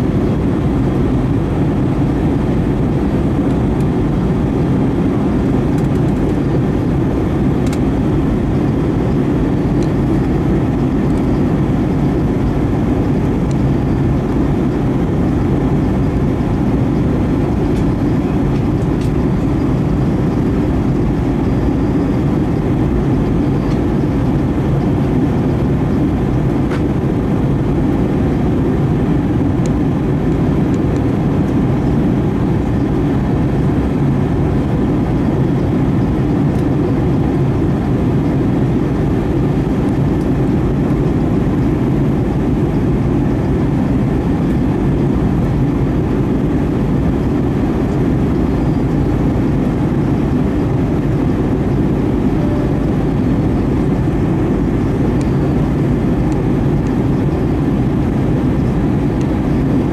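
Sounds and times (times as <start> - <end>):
jet engine drone in cabin: 0.0 - 59.9.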